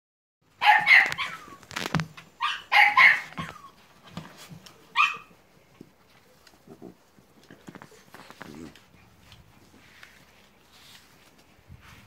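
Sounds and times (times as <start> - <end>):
puppies yapping: 0.5 - 4.0, 4.9 - 5.4.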